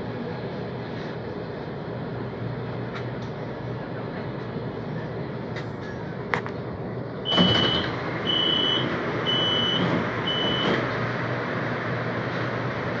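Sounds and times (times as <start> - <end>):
train running noise: 0.0 - 13.0
high door beeps: 7.3 - 10.8.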